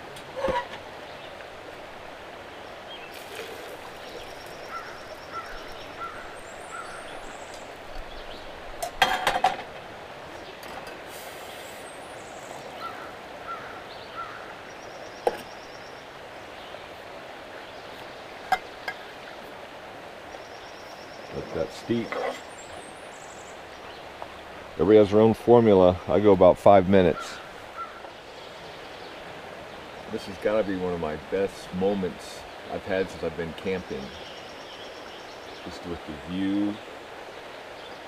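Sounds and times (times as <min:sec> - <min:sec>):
stream rushing: 0:00.0 - 0:38.0
bird chirping: 0:02.6 - 0:08.6, 0:20.3 - 0:24.5
cookware clatter: 0:08.8 - 0:09.7.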